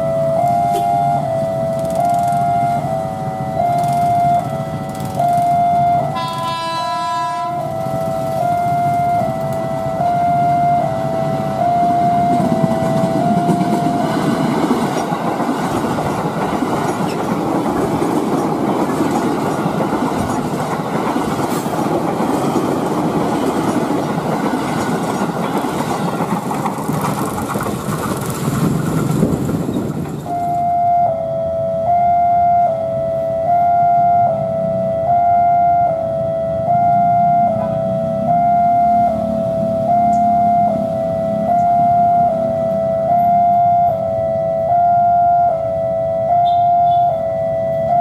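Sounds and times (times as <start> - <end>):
two-tone level crossing alarm: 0.0 - 21.4, 30.2 - 48.0
train wheels rumbling on rails: 0.0 - 30.7.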